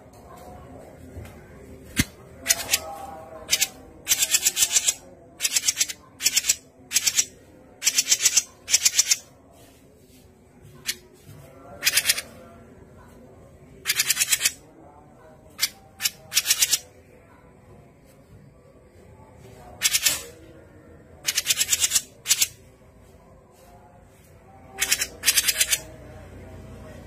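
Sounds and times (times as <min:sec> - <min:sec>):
bird rattling chatter: 0:03.5 - 0:09.3, 0:21.2 - 0:22.5, 0:24.8 - 0:25.8.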